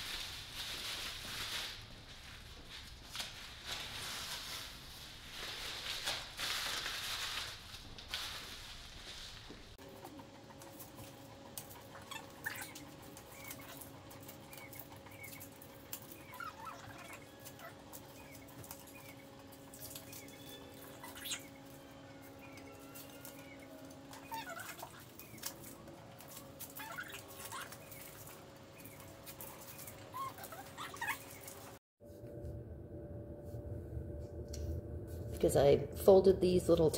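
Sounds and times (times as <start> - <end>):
tape peeling and crumpling: 0.0 - 9.8, 11.9 - 31.8
faint steady hum: 32.0 - 36.9.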